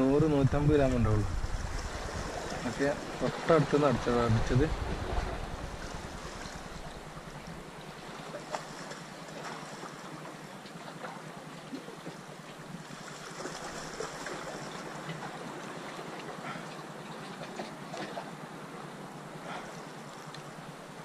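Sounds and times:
sea washing against rocks: 0:00.2 - 0:10.5, 0:11.9 - 0:18.4.

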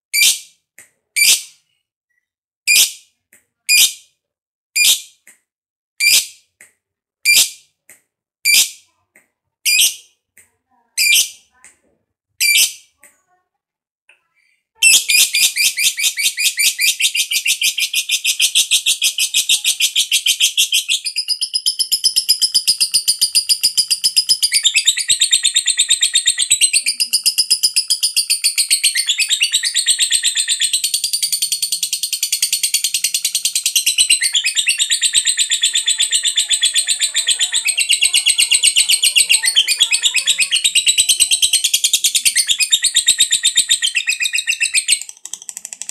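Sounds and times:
lovebird chattering: 0:14.8 - 0:45.9.

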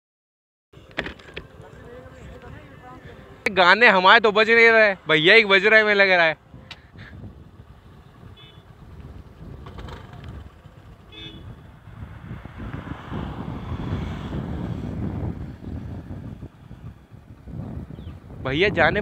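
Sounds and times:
road traffic: 0:00.8 - 0:19.0
car horn toots: 0:08.3 - 0:08.8, 0:11.1 - 0:11.6
car driving past: 0:09.5 - 0:16.8.

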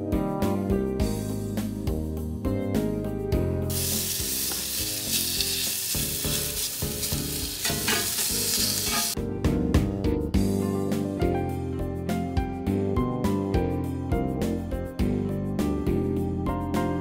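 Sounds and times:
background music: 0:00.0 - 0:17.0
bacon sizzling in a skillet: 0:03.7 - 0:09.2.

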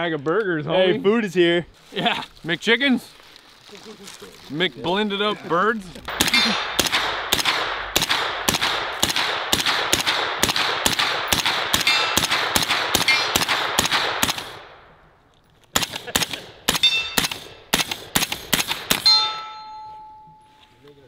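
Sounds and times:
semi-automatic gunfire: 0:06.1 - 0:14.8, 0:15.8 - 0:19.1
metallic ring: 0:16.8 - 0:17.3, 0:19.0 - 0:20.8.

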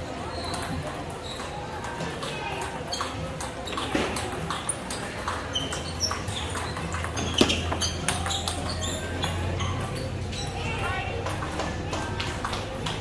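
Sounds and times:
table tennis balls clicking: 0:00.4 - 0:13.0
short high squeaks: 0:05.5 - 0:10.7.

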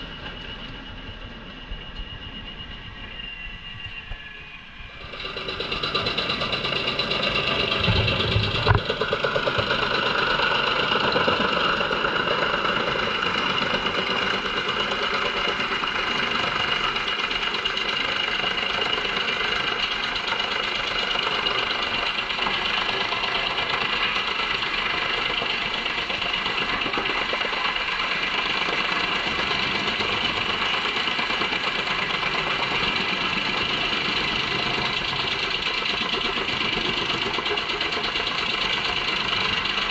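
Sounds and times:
wood chipper droning: 0:05.0 - 0:39.9
heavy knocks: 0:07.6 - 0:09.2.

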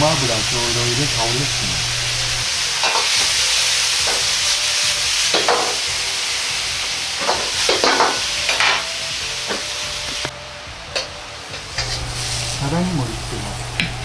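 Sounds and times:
food sizzling in a wok: 0:00.0 - 0:14.0
metal ladle scraping a wok: 0:11.8 - 0:12.6.

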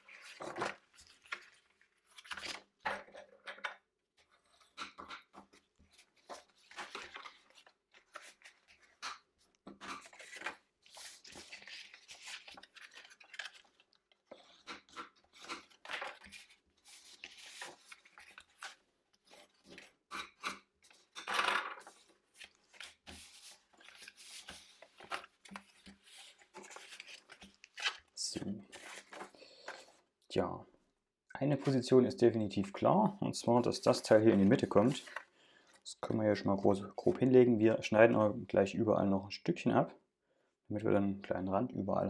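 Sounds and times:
stiff paper rustling and crinkling: 0:00.0 - 0:02.7, 0:04.3 - 0:20.1, 0:20.9 - 0:30.0.

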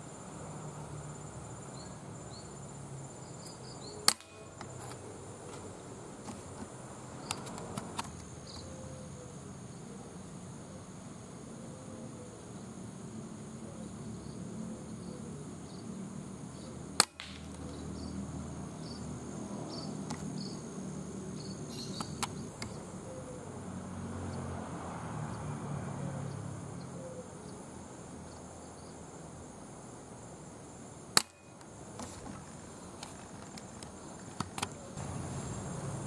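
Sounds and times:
insects buzzing: 0:00.0 - 0:36.0
small birds chirping: 0:01.6 - 0:10.2, 0:13.7 - 0:23.5.

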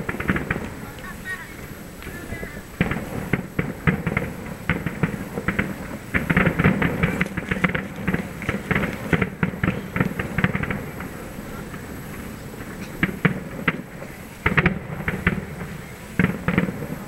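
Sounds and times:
distant fireworks bangs and crackling: 0:00.0 - 0:17.0.

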